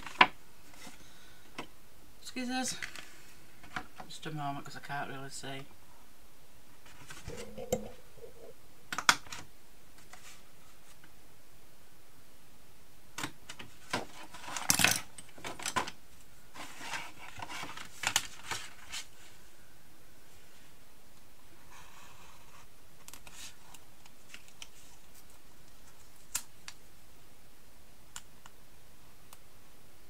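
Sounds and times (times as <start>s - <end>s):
crackly paper rustling: 13.6s - 19.4s, 23.1s - 26.7s.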